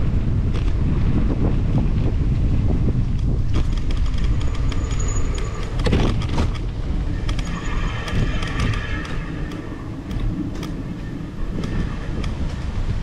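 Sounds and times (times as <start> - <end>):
wind rumble on microphone: 0.0 - 13.0
bicycle rattling clicks: 3.1 - 10.9.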